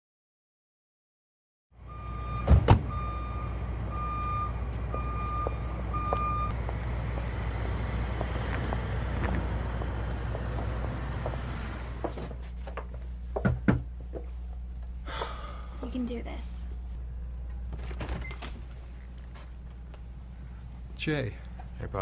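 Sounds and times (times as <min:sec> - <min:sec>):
reversing beeper: 0:01.8 - 0:06.6
low engine rumble: 0:01.8 - 0:22.0.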